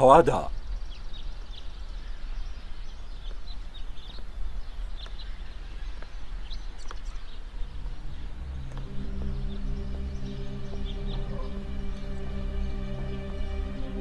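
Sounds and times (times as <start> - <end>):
birds chirping: 0.0 - 14.0
soft music with sustained tones: 5.5 - 14.0
low background rumble: 7.4 - 14.0.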